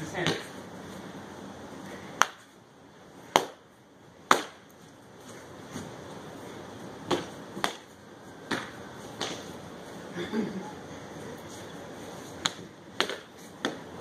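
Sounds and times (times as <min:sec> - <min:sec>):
foam swords whacking: 0:04.3 - 0:04.6.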